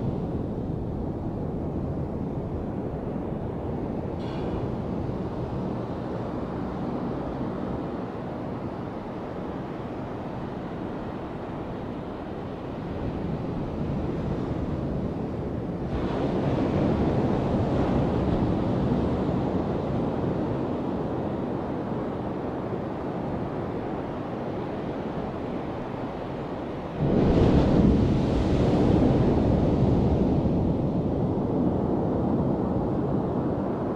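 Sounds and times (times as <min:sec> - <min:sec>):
wave breaking on shore: 0:27.0 - 0:30.8
surf washing onto beach: 0:27.0 - 0:31.2.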